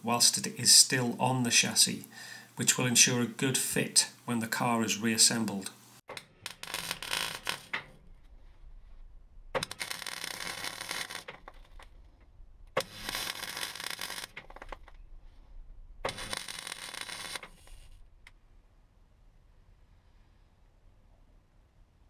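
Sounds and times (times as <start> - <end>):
mig welder bursts: 6.3 - 7.8, 9.6 - 11.4, 12.8 - 14.5, 16.0 - 17.9.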